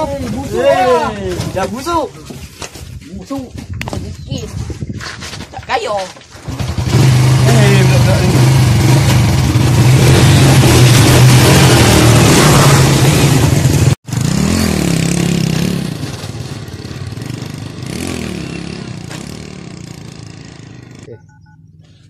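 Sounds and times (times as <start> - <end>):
loud engine running: 6.4 - 21.1
motorcycle riding away: 6.4 - 21.2
phone keypad beeps: 21.1 - 21.7.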